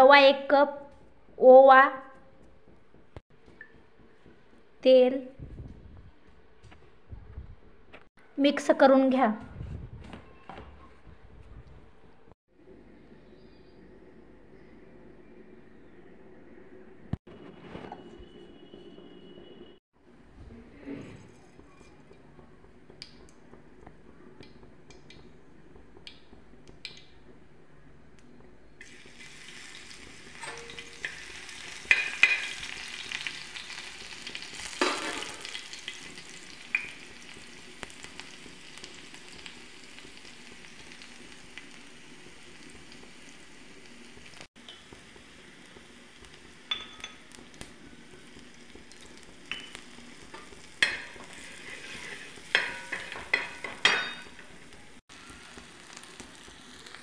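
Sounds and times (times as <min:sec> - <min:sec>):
hot oil sizzling in a pan: 0:28.8 - 0:57.0
spoon clinking and scraping pan: 0:30.4 - 0:32.6, 0:50.8 - 0:54.5.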